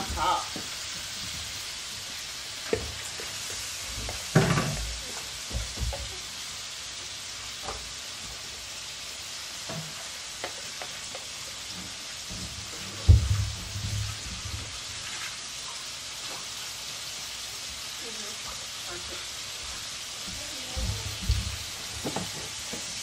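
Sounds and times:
meat sizzling in frying pan: 0:00.0 - 0:23.0
knocks and clatters against pan: 0:02.6 - 0:06.2, 0:20.3 - 0:23.0.

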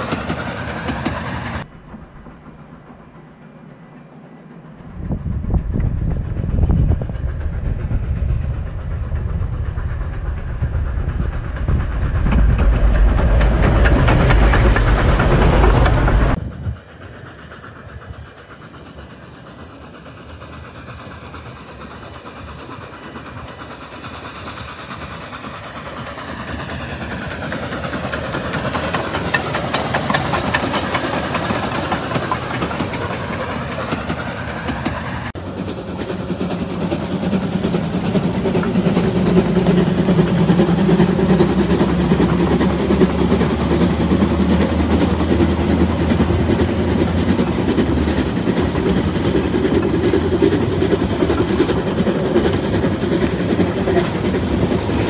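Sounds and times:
steam hissing: 0:00.0 - 0:55.0
steam locomotive rumbling: 0:00.0 - 0:55.0.

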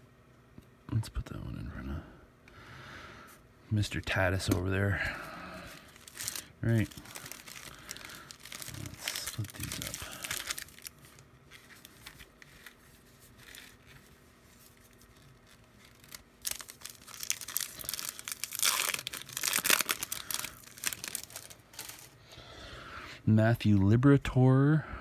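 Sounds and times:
foil wrapper tearing and crinkling: 0:05.6 - 0:22.2.

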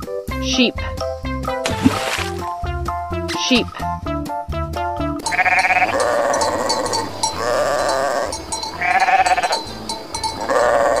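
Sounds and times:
sheep bleating: 0:05.2 - 0:09.7, 0:10.4 - 0:11.0.

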